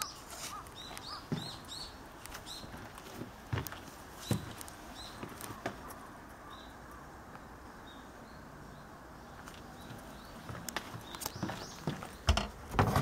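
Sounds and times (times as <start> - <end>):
small birds chirping: 0.0 - 12.7
footsteps on boat deck: 0.4 - 5.9, 9.4 - 13.0.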